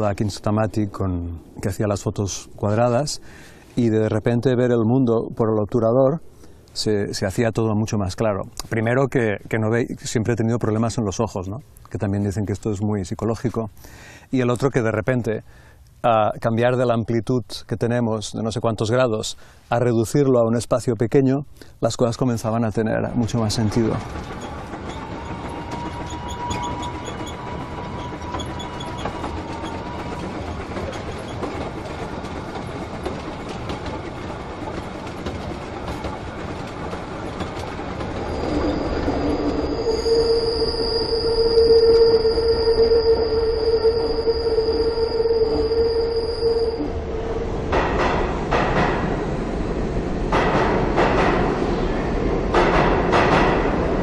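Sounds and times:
train rumbling on rails: 0.0s - 4.8s, 22.2s - 54.0s
high wheel squeal: 23.2s - 33.6s, 37.2s - 47.2s.

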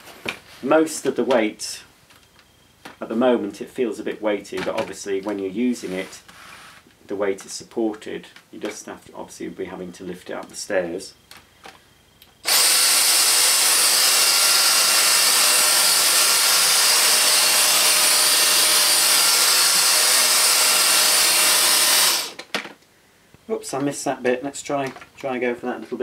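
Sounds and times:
cordless vacuum cleaner running: 12.4s - 22.4s.

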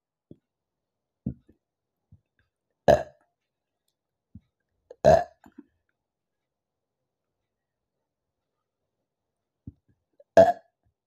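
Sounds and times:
soft throat sounds: 2.9s - 3.2s, 4.9s - 5.7s, 9.7s - 10.8s
woman burping loudly: 2.9s - 3.2s, 5.0s - 5.4s, 10.3s - 10.7s.

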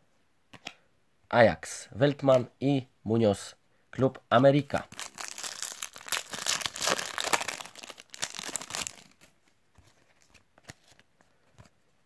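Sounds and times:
foil sachet crinkling: 5.0s - 9.3s.

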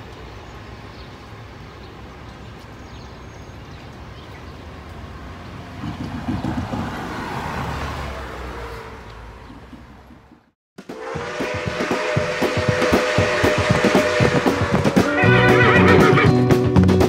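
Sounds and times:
rushing sound: 10.8s - 17.0s.

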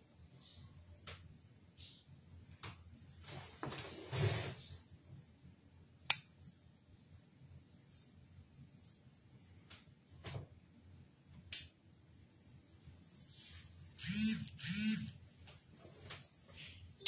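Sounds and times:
rustling noise: 3.1s - 4.8s, 12.9s - 13.9s.

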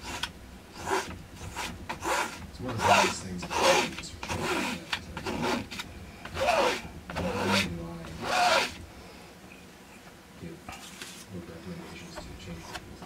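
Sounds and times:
paint scraping on canvas: 0.0s - 8.8s.

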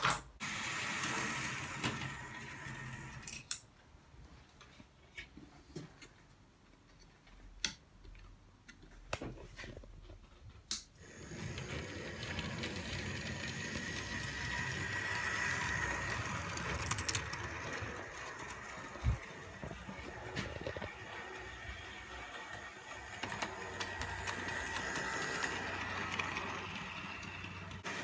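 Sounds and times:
model train motor whirring: 0.4s - 3.3s, 11.0s - 28.0s
wheels rumbling on rails: 11.1s - 28.0s.

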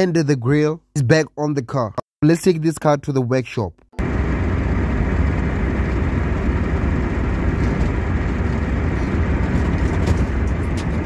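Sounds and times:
car interior driving drone: 4.0s - 11.0s.

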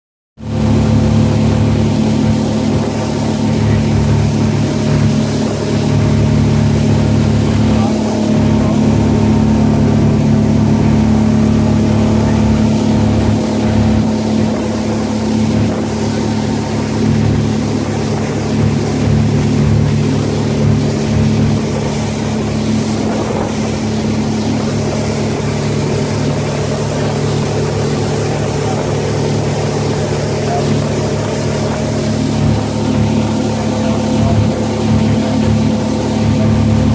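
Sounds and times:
motorboat engine running: 0.4s - 36.9s
water rushing from wake: 0.4s - 36.9s.

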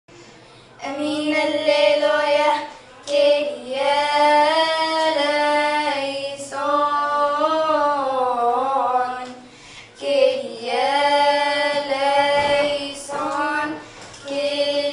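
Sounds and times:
breaths: 0.1s - 0.8s, 9.4s - 10.0s, 13.8s - 14.2s
children singing a hymn: 0.8s - 9.4s, 10.0s - 14.9s.

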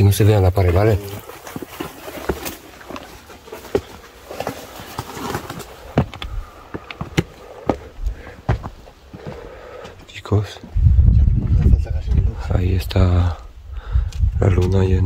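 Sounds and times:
footsteps climbing stairs: 0.6s - 10.2s
knocks and scuffs: 0.7s - 10.1s.

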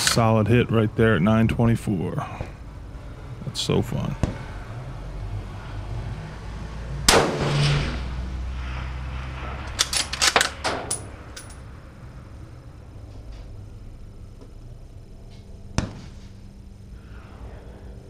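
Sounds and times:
rifle shot: 7.1s - 8.1s.

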